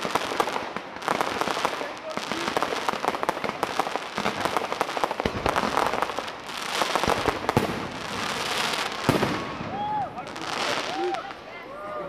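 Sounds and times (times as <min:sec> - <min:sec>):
fireworks hissing: 0:00.0 - 0:11.8
fireworks crackling: 0:00.0 - 0:12.0
sharp firework bang: 0:09.0 - 0:09.9.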